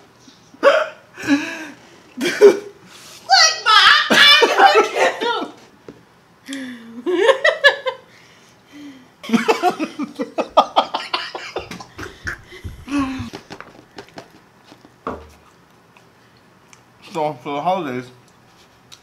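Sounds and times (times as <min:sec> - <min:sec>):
people laughing hard: 0:09.3 - 0:13.3.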